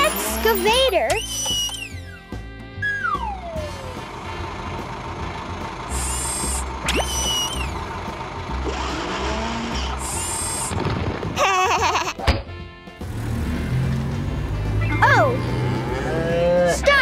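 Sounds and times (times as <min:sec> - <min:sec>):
cartoon excavator machine whirring: 0:00.0 - 0:05.2, 0:05.8 - 0:11.9
background music: 0:00.0 - 0:05.8, 0:11.2 - 0:17.0
rising whistle effect: 0:01.2 - 0:02.2, 0:02.8 - 0:03.8, 0:06.0 - 0:07.8.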